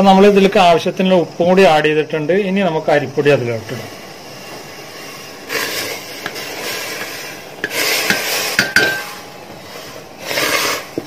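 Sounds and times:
spoon scraping through dough: 0:04.6 - 0:08.7, 0:09.6 - 0:11.0
spoon clinking against pot: 0:07.6 - 0:09.2.

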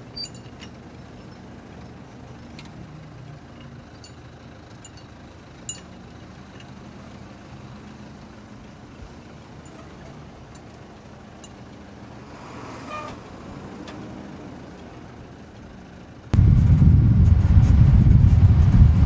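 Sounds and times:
vehicle engine running: 0:00.0 - 0:12.6, 0:13.2 - 0:19.0
loud rough low rumble: 0:16.3 - 0:19.0.

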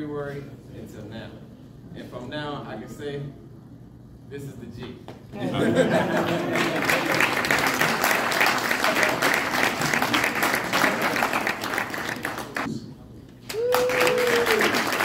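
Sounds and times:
audience applauding: 0:06.1 - 0:12.7, 0:13.4 - 0:15.0.

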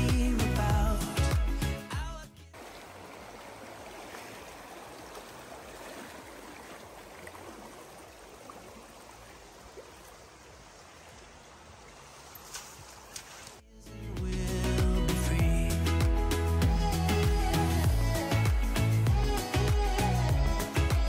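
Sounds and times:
stream water rushing: 0:02.6 - 0:13.6.

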